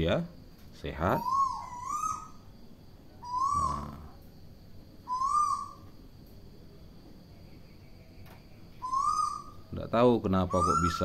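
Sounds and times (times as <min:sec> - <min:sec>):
bird calls: 0:00.9 - 0:04.3, 0:05.0 - 0:06.0, 0:07.2 - 0:11.0.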